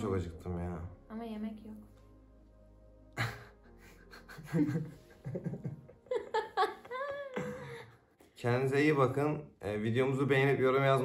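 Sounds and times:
man and woman laughing: 0:03.2 - 0:07.9.

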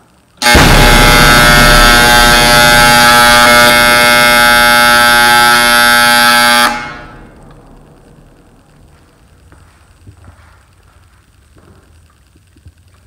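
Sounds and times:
timer buzzer: 0:00.4 - 0:07.3.

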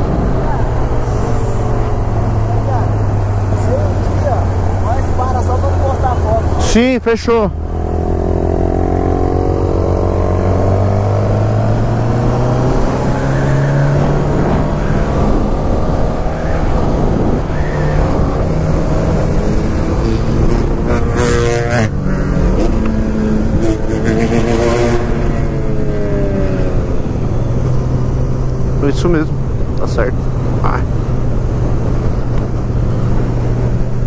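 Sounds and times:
motorcycle engine accelerating: 0:07.5 - 0:34.0.

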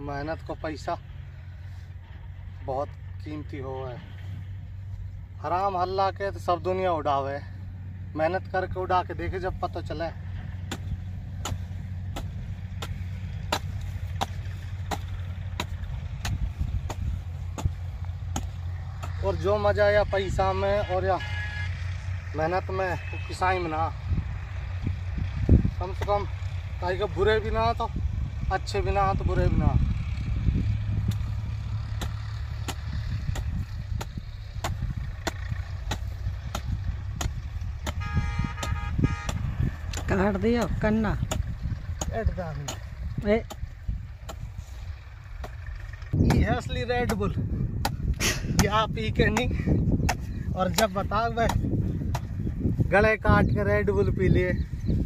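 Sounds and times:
low rumble: 0:00.0 - 0:20.7, 0:23.8 - 0:55.0
hoe chopping into dry soil: 0:10.4 - 0:19.6, 0:31.0 - 0:44.8, 0:45.4 - 0:52.7
horn sounding: 0:20.5 - 0:22.0, 0:22.8 - 0:23.7, 0:37.8 - 0:39.8.

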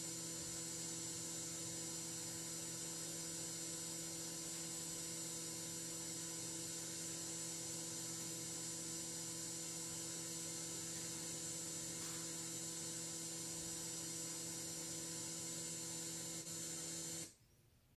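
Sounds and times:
faint electrical hum: 0:00.0 - 0:18.0
steady hiss: 0:09.9 - 0:12.9.

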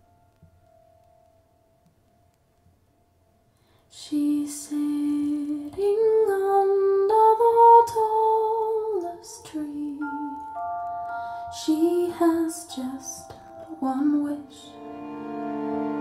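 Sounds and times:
woman singing slow melody: 0:03.9 - 0:14.8.

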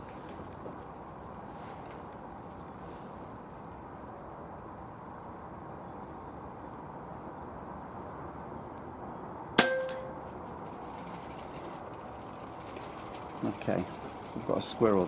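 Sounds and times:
short metallic ring: 0:09.6 - 0:10.3.

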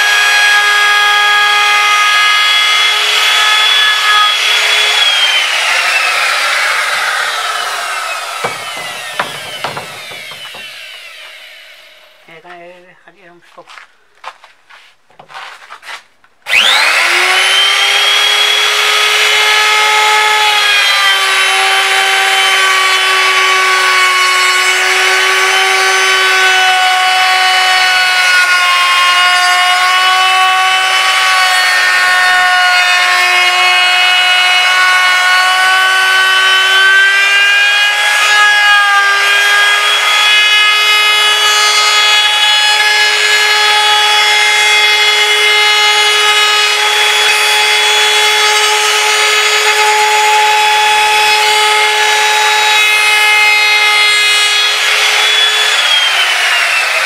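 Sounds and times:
power tool whining on wood: 0:00.0 - 0:12.4, 0:16.4 - 0:57.0.

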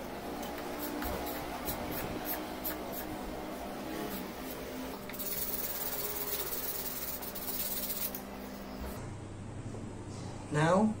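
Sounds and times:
sandpaper rubbing on wood: 0:04.1 - 0:08.2.

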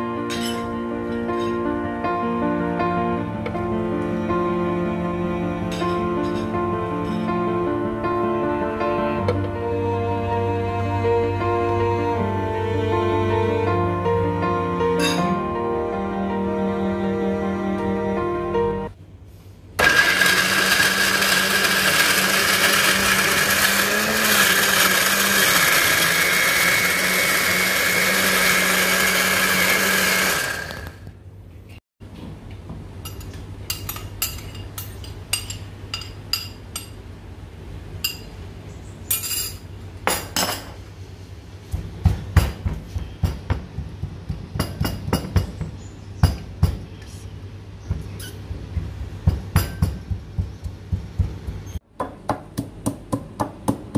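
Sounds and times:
electric blender running: 0:19.8 - 0:31.2.

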